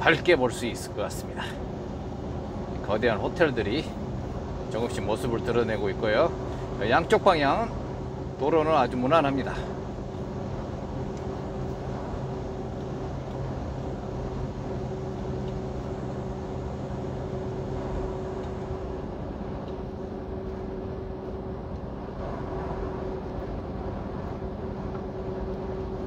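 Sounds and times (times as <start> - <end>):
constant hum tones: 0.0 - 26.0
diesel truck engine drone: 0.0 - 26.0
road noise: 0.0 - 26.0.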